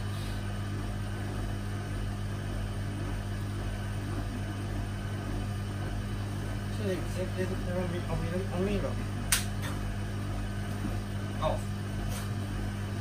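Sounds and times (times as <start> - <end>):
washing machine humming: 0.0 - 13.0.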